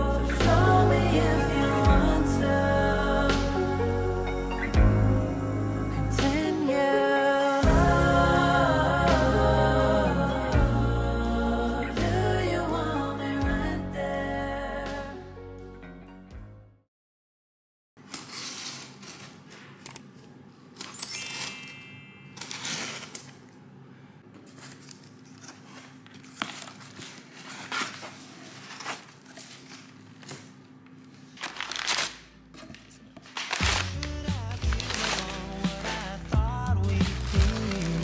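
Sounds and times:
background music: 0.0s - 16.8s, 33.5s - 38.0s
cardboard box and paper rustling: 22.4s - 23.4s, 24.4s - 30.6s, 31.2s - 36.3s, 37.0s - 38.0s.

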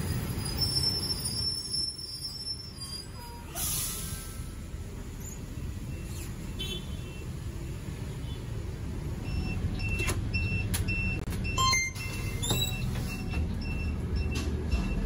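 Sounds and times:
bus engine idling: 0.0s - 15.0s
street traffic: 0.0s - 15.0s
card reader beeps and clicks: 9.8s - 15.0s.

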